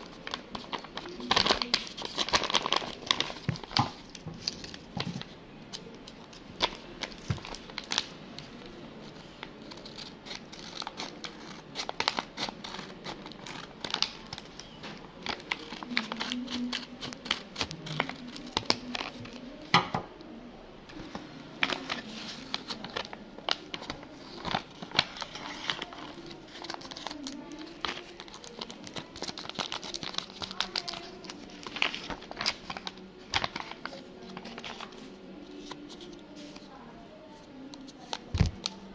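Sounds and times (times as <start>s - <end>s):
paper bag crinkling: 21.0s - 36.7s.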